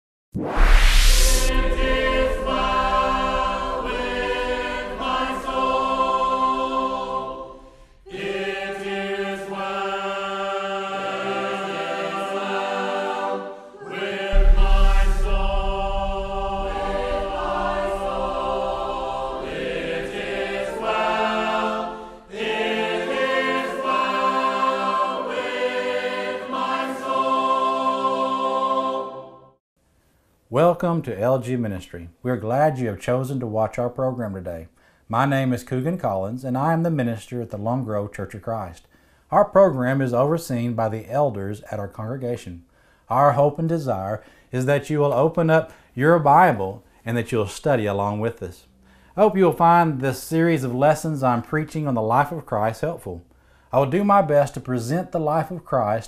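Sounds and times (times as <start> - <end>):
deep low hit: 0.4 - 6.6, 14.2 - 21.1
choir singing a cappella: 1.2 - 29.6.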